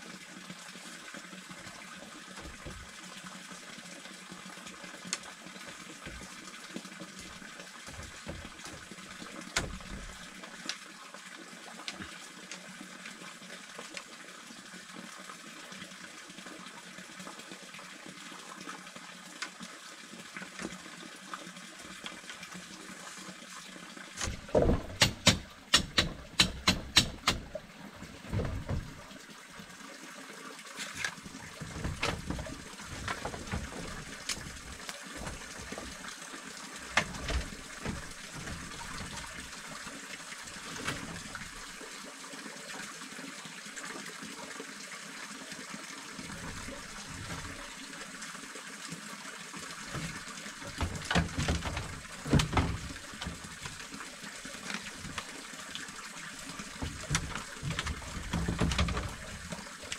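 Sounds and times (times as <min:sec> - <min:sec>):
running water: 0:00.0 - 0:59.9
sharp knocks: 0:24.2 - 0:29.0, 0:31.6 - 0:36.1, 0:36.9 - 0:39.5, 0:49.9 - 0:53.8, 0:56.7 - 0:59.6.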